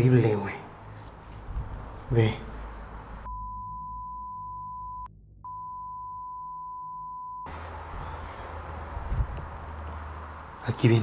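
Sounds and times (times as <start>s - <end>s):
high-pitched censor beep: 3.3s - 7.5s.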